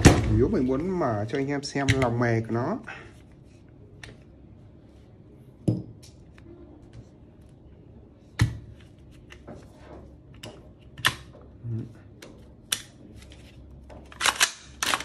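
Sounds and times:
toy rifle parts clicking: 14.1 - 15.0.

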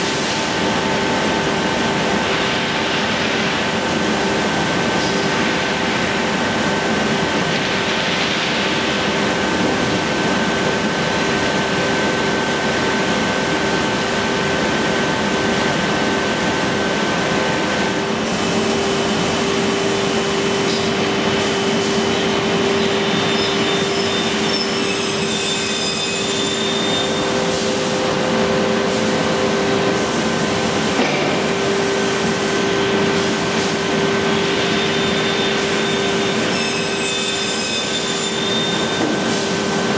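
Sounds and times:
panel saw machine drone: 9.0 - 39.9.

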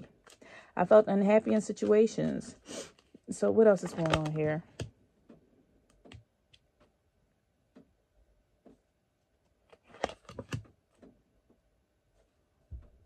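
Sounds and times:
cards clicking and tapping: 9.7 - 11.1.

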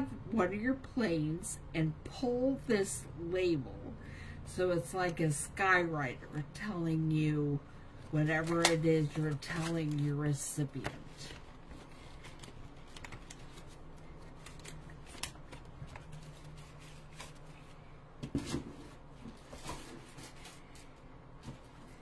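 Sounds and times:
faint steady hum: 0.0 - 22.0
plastic packaging crinkling: 11.1 - 17.5.

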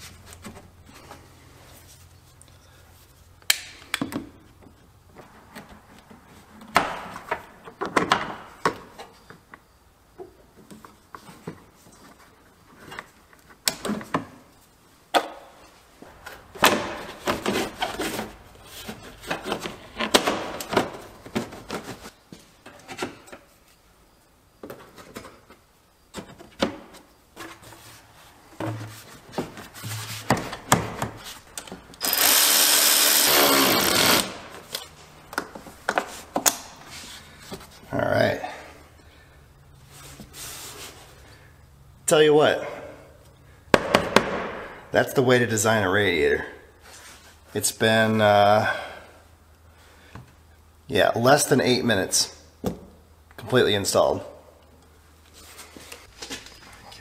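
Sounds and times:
power tool running: 32.0 - 34.4.

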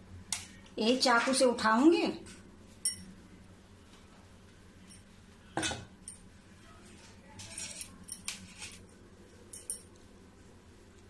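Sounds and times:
light clinks on steel plate: 9.5 - 9.9.

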